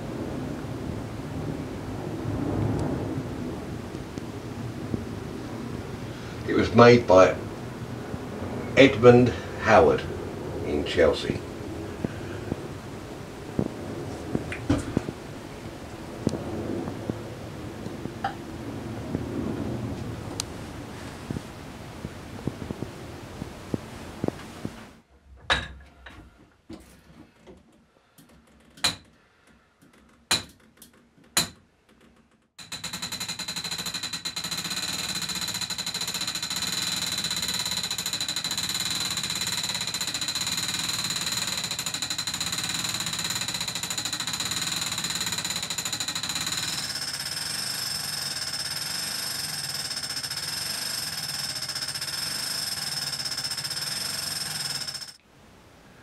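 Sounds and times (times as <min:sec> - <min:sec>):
clock mechanism clicks and knocks: 0:29.8 - 0:55.2
rapid ratchet clatter: 0:29.8 - 0:55.2
high ringing whine: 0:32.6 - 0:55.2.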